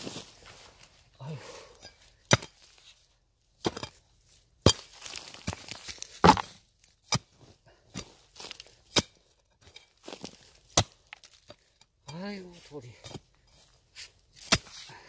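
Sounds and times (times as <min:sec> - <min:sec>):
earth scraping: 0:00.0 - 0:15.0
digging tool chopping stony soil: 0:01.8 - 0:02.8, 0:03.6 - 0:04.0, 0:04.6 - 0:12.2, 0:13.0 - 0:13.4, 0:14.0 - 0:14.9.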